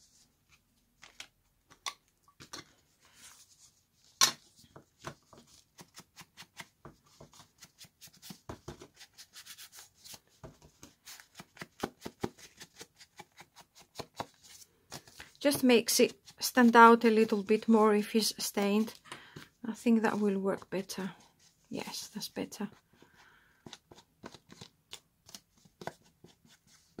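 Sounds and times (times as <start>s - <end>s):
ink dauber dabbing on paper: 15.4s - 19.0s.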